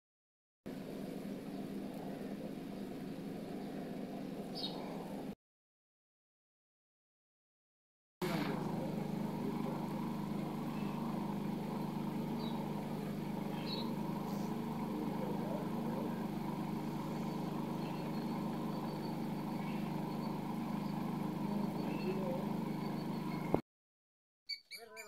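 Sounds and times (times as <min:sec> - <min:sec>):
electric fan whirring: 0:00.7 - 0:05.4, 0:08.2 - 0:23.6
faint high chirps: 0:10.5 - 0:23.6.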